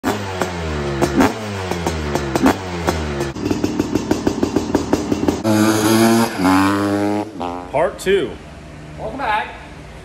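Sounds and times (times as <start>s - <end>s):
two-stroke engine revving: 0.0s - 7.8s.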